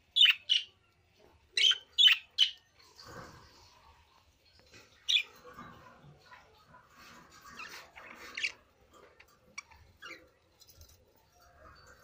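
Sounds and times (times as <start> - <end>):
budgerigars chirping: 0.2 - 0.8, 1.6 - 2.6.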